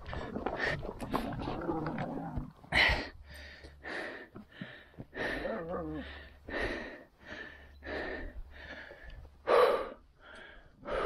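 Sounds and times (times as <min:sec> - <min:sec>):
man panting: 0:02.7 - 0:11.0.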